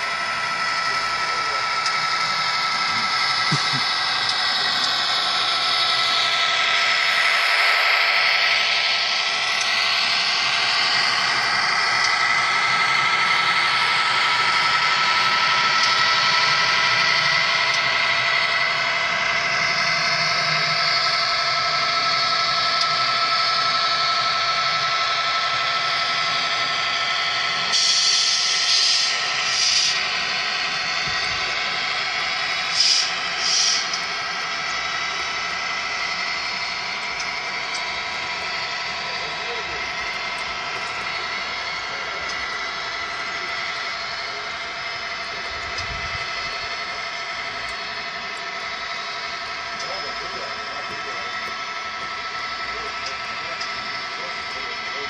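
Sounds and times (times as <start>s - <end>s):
model train whining past: 0.0s - 55.0s
hiss: 19.4s - 44.8s.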